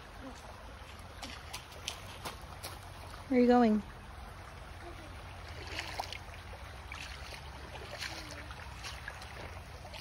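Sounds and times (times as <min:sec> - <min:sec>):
creek trickling over rocks: 0:00.0 - 0:10.0
footsteps on loose stones: 0:01.4 - 0:03.0.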